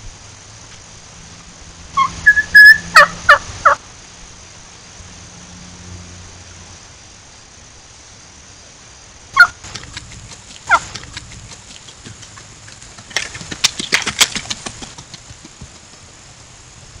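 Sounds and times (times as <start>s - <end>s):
turkey hen yelping: 2.0s - 3.8s, 9.4s - 9.6s, 10.7s - 11.0s
sharp crunching clicks: 9.6s - 16.0s.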